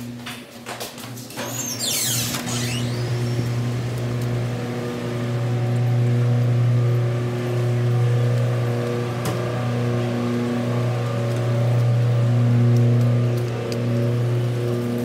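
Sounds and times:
door opening: 0:01.3 - 0:03.8
brief high squeal: 0:01.4 - 0:03.5
street traffic engine hum: 0:01.4 - 0:15.0.

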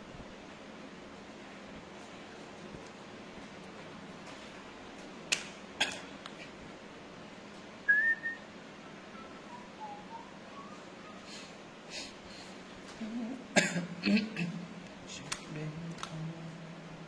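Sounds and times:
short whistled notes: 0:07.9 - 0:11.6.

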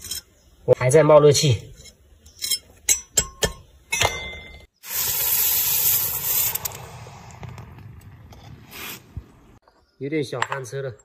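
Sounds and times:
metal tool clinking on metal: 0:01.8 - 0:04.6
hot metal hissing in water: 0:04.8 - 0:06.9.

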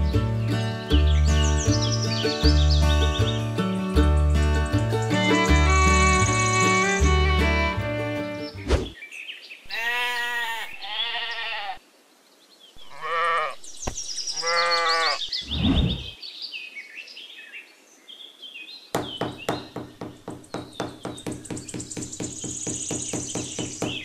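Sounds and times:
sheep bleating: 0:09.7 - 0:11.8, 0:12.8 - 0:13.6, 0:14.4 - 0:15.2.

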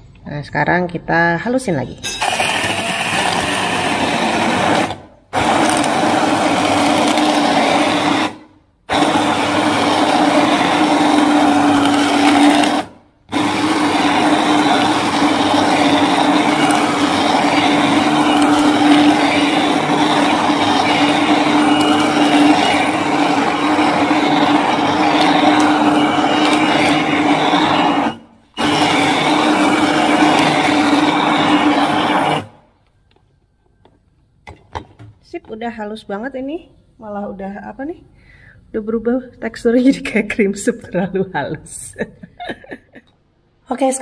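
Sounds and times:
hand blender whirring: 0:02.1 - 0:32.7.

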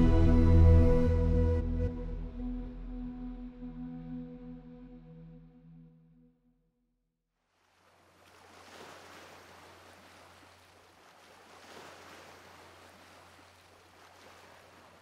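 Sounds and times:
low steady hum: 0:00.0 - 0:05.4
faint ocean surf: 0:07.6 - 0:15.0.

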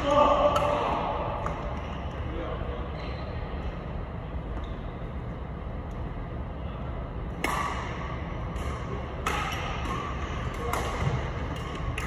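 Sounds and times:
rackets hitting shuttlecock: 0:00.4 - 0:02.2, 0:07.3 - 0:12.0.

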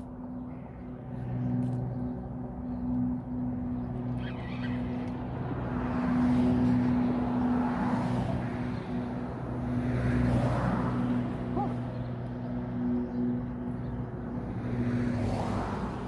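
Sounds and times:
road traffic engine hum: 0:00.0 - 0:16.0
vehicles passing: 0:00.0 - 0:16.0.

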